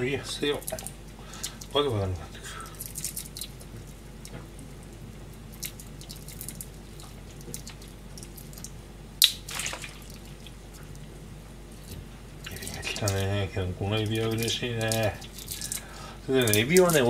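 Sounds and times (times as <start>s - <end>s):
shrimp shells clicking and crackling: 0.3s - 1.9s, 2.5s - 11.0s, 13.9s - 17.0s.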